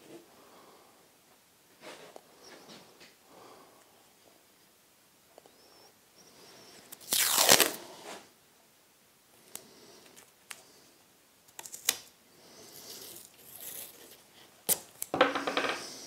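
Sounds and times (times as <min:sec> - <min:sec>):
masking tape ripping off roll: 0:06.9 - 0:07.9, 0:11.5 - 0:12.1, 0:12.8 - 0:15.1.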